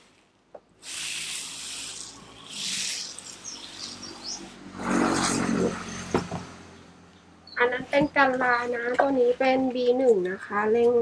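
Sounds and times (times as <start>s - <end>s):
pressure sprayer spraying liquid: 0.8s - 5.0s.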